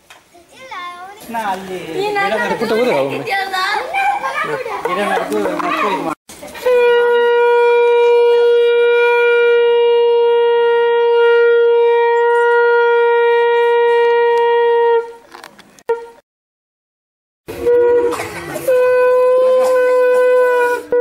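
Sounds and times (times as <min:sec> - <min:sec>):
conch shell blowing: 0:06.6 - 0:15.2, 0:15.9 - 0:16.2, 0:17.5 - 0:21.0.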